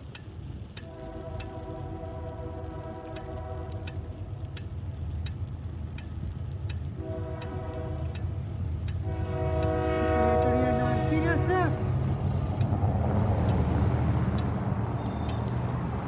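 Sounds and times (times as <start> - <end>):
low vehicle rumble: 0.0 - 16.0
locomotive horn blasts: 0.8 - 4.0, 7.0 - 8.2, 9.0 - 11.9.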